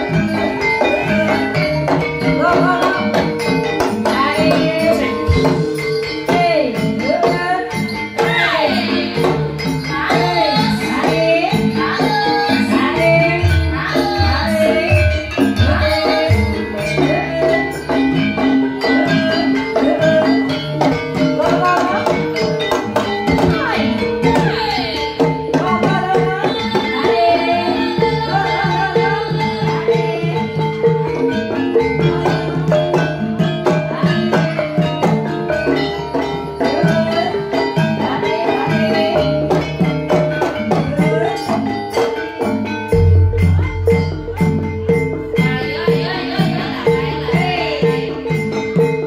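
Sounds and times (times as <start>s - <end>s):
gamelan metallophones: 0.0s - 49.0s
hand drums: 0.0s - 49.0s.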